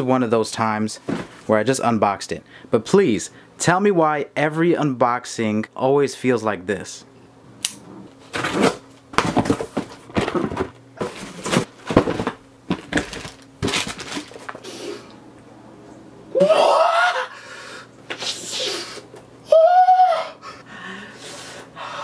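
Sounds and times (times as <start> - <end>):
person sniffing loudly: 14.6 - 15.1, 17.4 - 19.1, 21.0 - 21.8.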